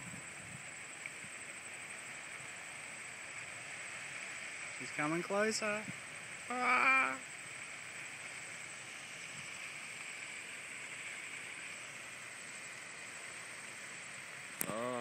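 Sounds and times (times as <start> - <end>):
strong wind: 0.0 - 1.8
grass fire burning: 0.0 - 15.0.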